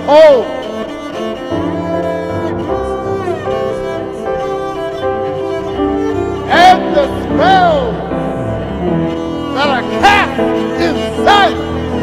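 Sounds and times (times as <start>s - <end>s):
cello: 0.0s - 12.0s
man crying out: 9.8s - 11.7s.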